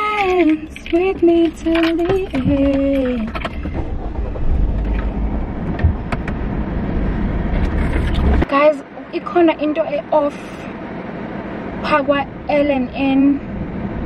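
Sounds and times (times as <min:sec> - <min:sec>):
woman singing: 0:00.0 - 0:03.4
knocks and rustling: 0:00.0 - 0:06.6
low rumble inside a car: 0:00.0 - 0:11.2, 0:11.8 - 0:14.0.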